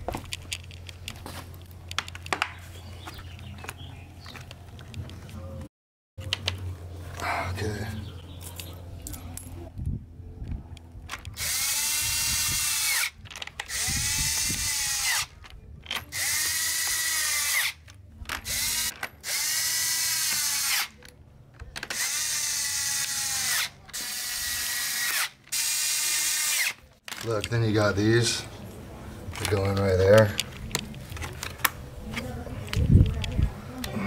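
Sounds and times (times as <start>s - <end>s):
cordless drill spinning screws: 11.3s - 15.3s, 16.1s - 21.0s, 21.8s - 26.8s.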